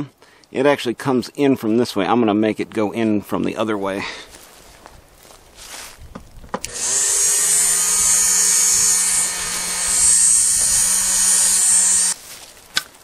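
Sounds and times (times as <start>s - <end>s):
power tool grinding steel: 6.6s - 12.2s.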